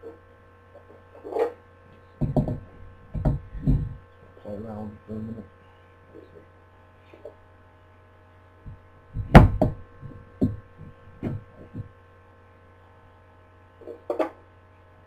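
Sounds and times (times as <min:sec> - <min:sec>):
electrical hum: 0:00.0 - 0:15.0
knocks and clicks on wooden table: 0:02.2 - 0:03.9.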